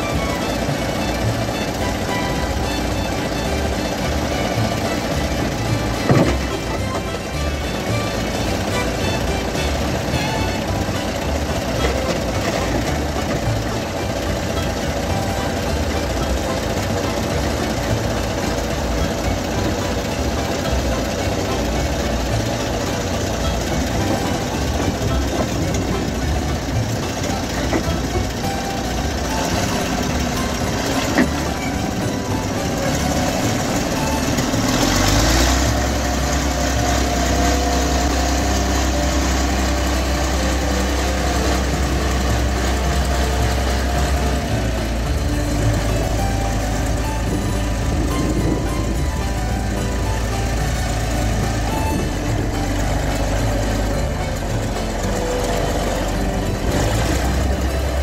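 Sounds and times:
tractor engine rumbling: 0.0s - 58.0s.

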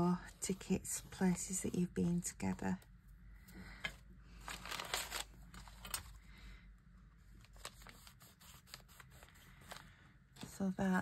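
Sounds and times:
paper rustling: 4.3s - 6.2s, 7.3s - 10.6s.

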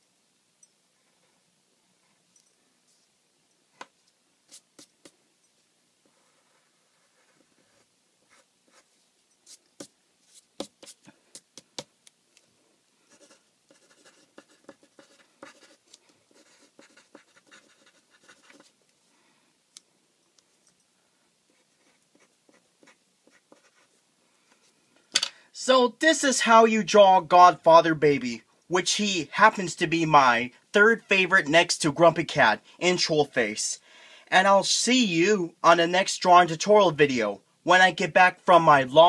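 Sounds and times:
pencil scratching on paper: 6.0s - 11.6s, 13.1s - 18.8s, 21.5s - 24.0s.

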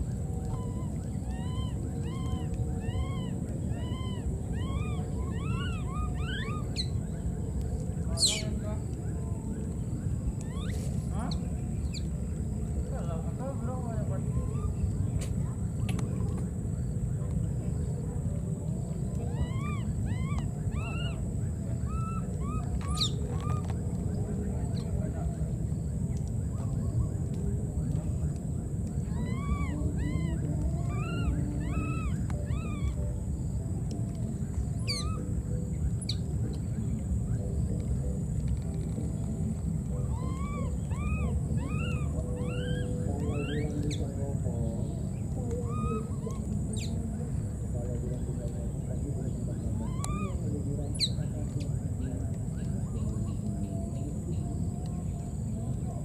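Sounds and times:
low background rumble: 0.0s - 56.0s
baby monkey crying: 0.5s - 6.9s, 10.4s - 10.8s, 19.3s - 23.7s, 29.0s - 33.0s, 34.8s - 35.2s, 40.0s - 43.9s, 49.8s - 50.4s
high monkey squeal: 0.6s - 7.0s, 10.4s - 10.9s, 19.3s - 23.7s, 29.0s - 33.0s, 34.8s - 35.3s, 40.0s - 43.7s, 49.8s - 50.4s.

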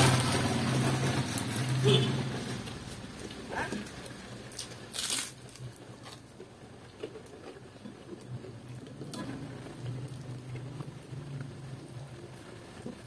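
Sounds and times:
person biting and chewing: 3.8s - 7.6s.

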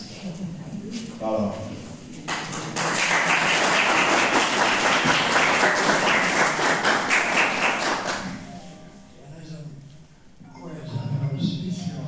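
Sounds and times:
audience applauding: 2.3s - 8.4s.

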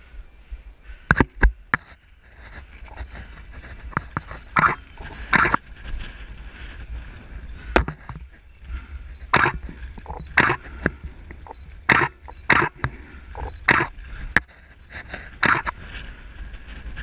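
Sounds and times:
heavy breathing of exertion: 0.0s - 17.0s
wind rumble on microphone: 0.0s - 17.0s.

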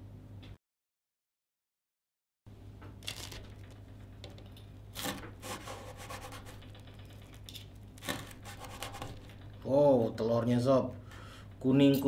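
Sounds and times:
knife scraping crisp food: 5.0s - 6.6s, 8.0s - 9.2s.

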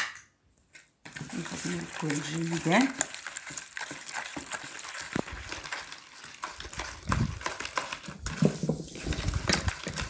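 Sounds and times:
hand squishing soft mixture: 0.9s - 10.0s.

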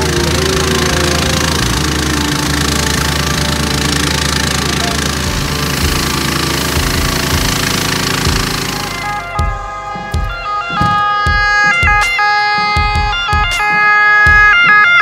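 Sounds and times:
fire hose spraying water: 0.0s - 9.2s
small engine running: 0.0s - 9.6s.

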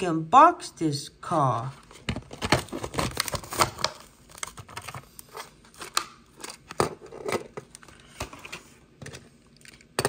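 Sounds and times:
plastic packaging crackling: 1.9s - 6.8s.

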